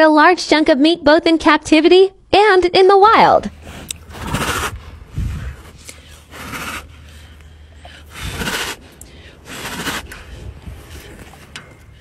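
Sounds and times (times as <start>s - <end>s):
tiger chuffing: 3.5s - 11.5s.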